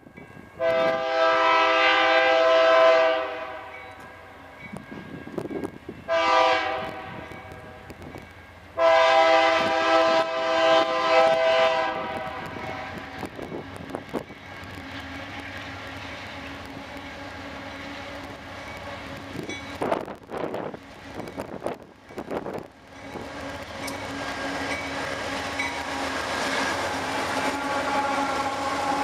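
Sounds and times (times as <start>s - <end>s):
locomotive air horn blasts: 0.6s - 3.8s, 6.1s - 7.8s, 8.8s - 13.4s, 25.8s - 29.0s
diesel locomotive engine running: 4.2s - 29.0s.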